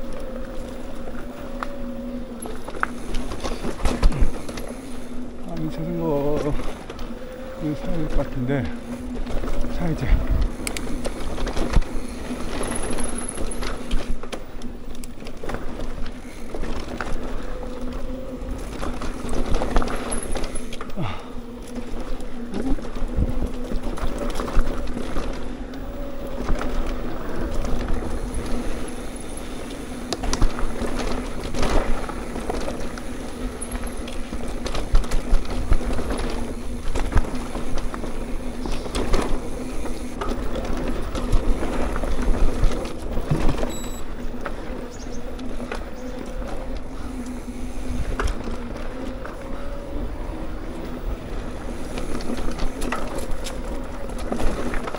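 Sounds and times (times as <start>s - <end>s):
bike clicks and knocks: 0.0s - 5.0s, 10.4s - 54.9s
bike tyre rumble: 0.0s - 54.9s
wind on microphone: 8.6s - 13.5s, 21.0s - 33.8s.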